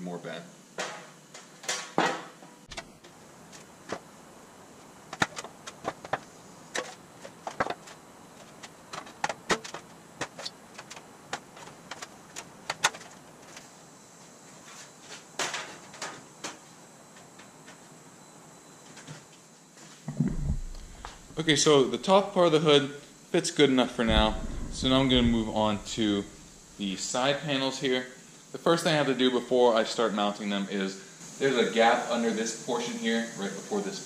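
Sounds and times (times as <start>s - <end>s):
metallic clatter: 20.2s - 21.8s, 24.1s - 26.8s
metal sheet clicks and ticks: 24.1s - 26.8s.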